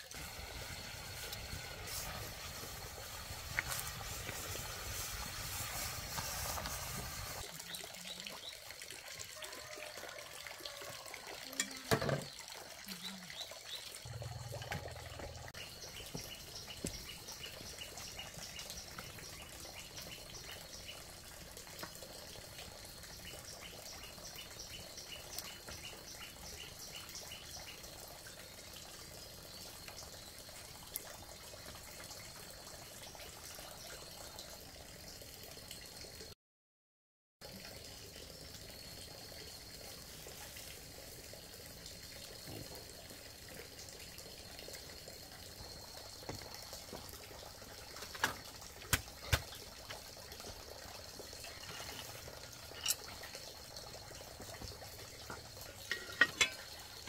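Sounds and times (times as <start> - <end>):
steady hiss: 0.0 - 7.4
wood fire crackling: 0.0 - 7.5
greens steaming in pot: 0.0 - 8.9, 10.0 - 34.9, 37.5 - 57.0.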